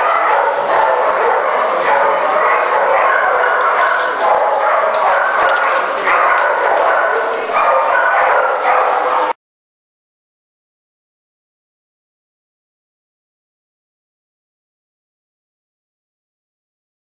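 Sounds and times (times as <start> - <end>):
dog barking and yipping: 0.0 - 9.3.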